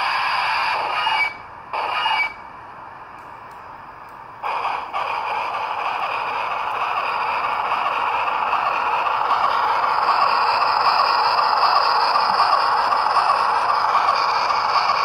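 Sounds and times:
model locomotive steam exhaust hiss: 0.0s - 2.2s, 4.4s - 15.0s.

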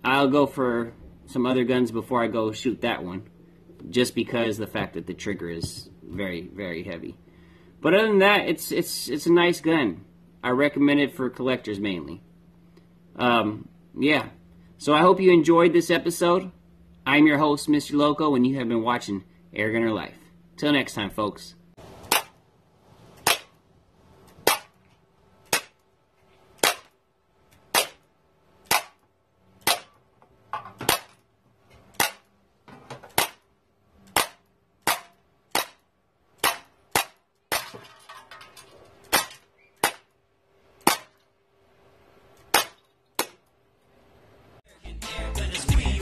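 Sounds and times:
air pistol shots popping: 22.0s - 22.4s, 23.2s - 23.6s, 24.4s - 24.8s, 25.5s - 25.8s, 26.6s - 27.0s, 27.7s - 29.0s, 29.6s - 30.0s, 30.8s - 31.2s, 32.0s - 32.3s, 33.1s - 33.4s, 34.1s - 35.8s, 36.4s - 37.7s, 39.1s - 40.1s, 40.8s - 41.2s, 42.5s - 43.4s.

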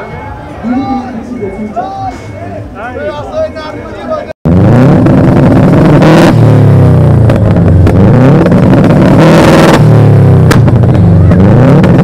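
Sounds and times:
car engine revving: 4.4s - 12.0s.

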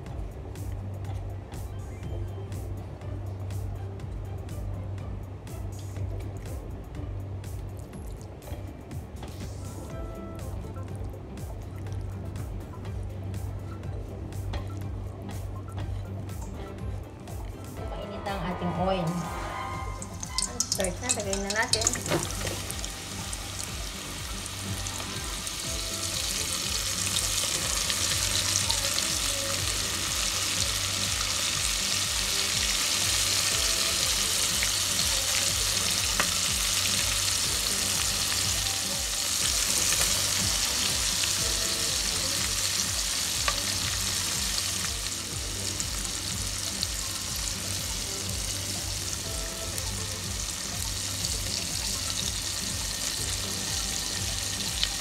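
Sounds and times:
oil sizzling while deep-frying: 19.4s - 55.0s.

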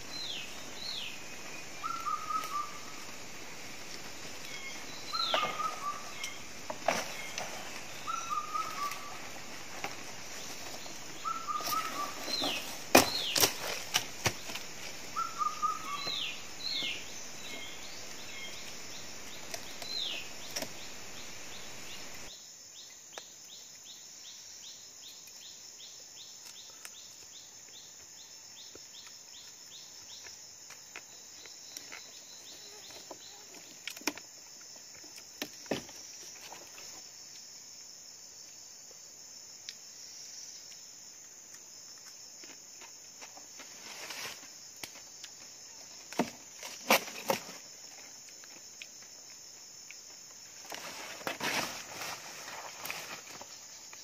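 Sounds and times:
insect chirping in quick pulse: 0.0s - 13.8s, 14.4s - 22.8s
birds downward-sweeping calls: 1.7s - 3.0s, 4.5s - 6.5s, 8.0s - 9.3s, 11.1s - 12.6s, 15.1s - 16.5s.

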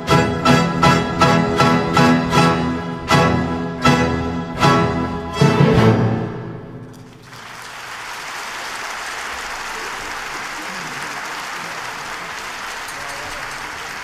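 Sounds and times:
orchestra chord: 0.0s - 6.8s
audience applauding: 6.8s - 14.0s.

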